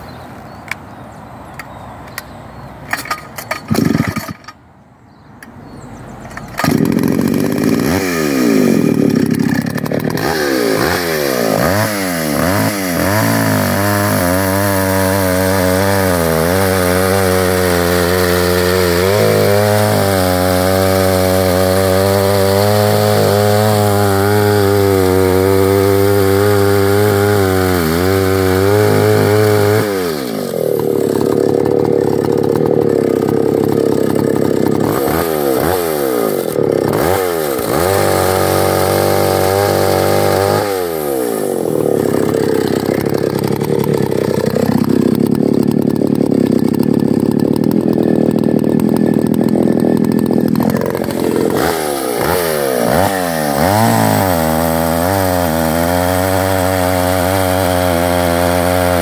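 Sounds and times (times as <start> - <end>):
chainsaw revving and cutting: 2.9 - 4.6, 6.4 - 59.0.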